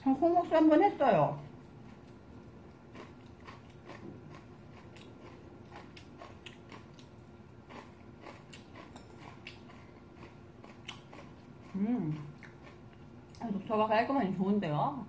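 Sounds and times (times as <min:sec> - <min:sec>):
person chewing noodles: 0:01.5 - 0:13.4.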